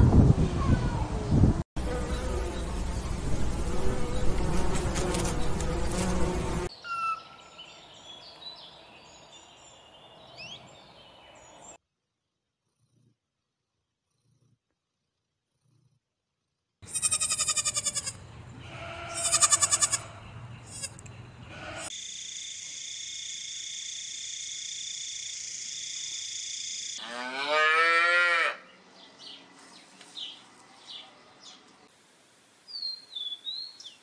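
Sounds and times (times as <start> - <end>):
grasshopper buzzing: 1.8 - 6.7.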